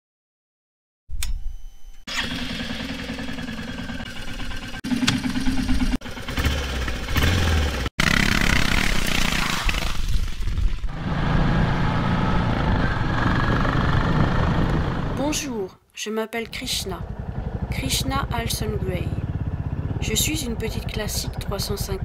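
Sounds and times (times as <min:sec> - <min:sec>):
motorcycle engine revving: 0:02.1 - 0:09.9, 0:10.9 - 0:15.3, 0:16.5 - 0:22.0
wind rushing over microphone: 0:10.6 - 0:15.3.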